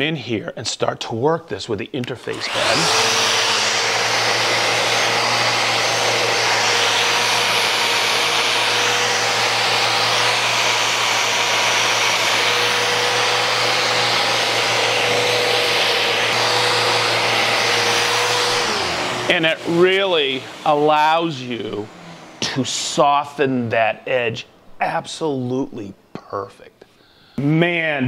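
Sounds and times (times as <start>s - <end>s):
orbital sander whining on wood: 2.3s - 23.2s
dust extractor rushing hum: 2.3s - 23.5s.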